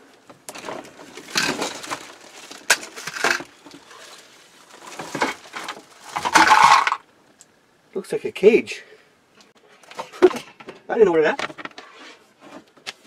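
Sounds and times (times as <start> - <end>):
metal mesh rattling and scraping: 4.8 - 7.0.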